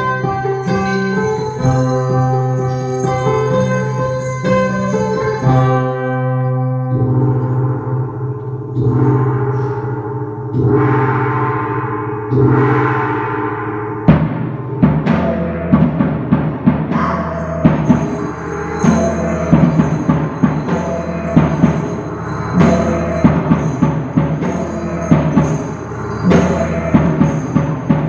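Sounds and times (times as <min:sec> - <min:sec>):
hanging gongs ringing: 0:00.0 - 0:28.0
quick drum strokes: 0:10.5 - 0:28.0.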